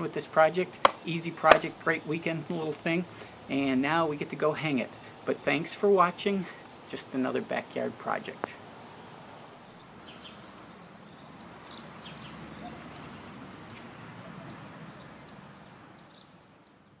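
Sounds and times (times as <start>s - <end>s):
outdoor background hiss: 0.0s - 17.0s
small birds chirping: 8.0s - 17.0s.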